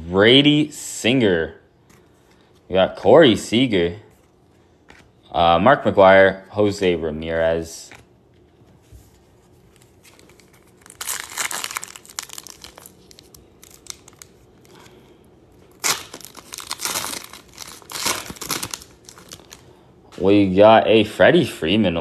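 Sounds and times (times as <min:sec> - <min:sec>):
wrapper being torn and crinkled: 0:09.7 - 0:14.9, 0:15.6 - 0:19.7.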